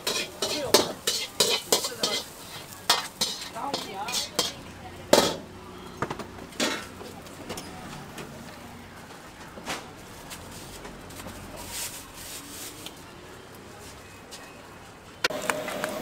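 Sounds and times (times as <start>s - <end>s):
plastic bag rustling: 10.0s - 13.1s.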